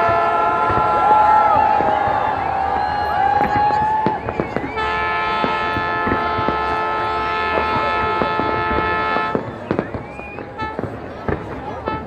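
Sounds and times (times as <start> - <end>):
loud sustained horn blast: 0.0 - 1.2, 4.8 - 9.5
fireworks bangs and crackles: 0.0 - 12.0.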